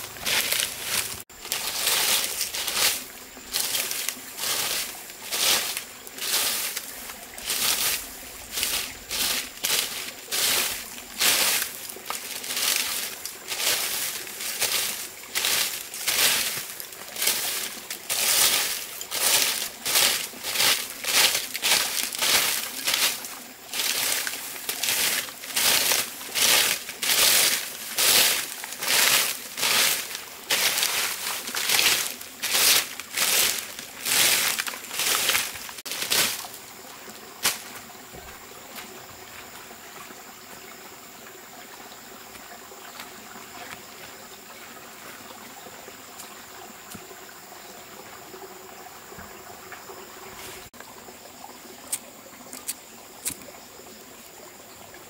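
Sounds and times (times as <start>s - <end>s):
dry rhythmic rustling strokes: 0.0s - 36.5s.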